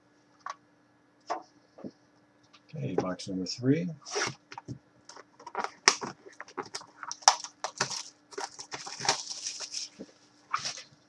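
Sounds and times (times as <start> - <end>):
cellophane tearing and crinkling: 4.0 - 4.4, 5.4 - 11.0.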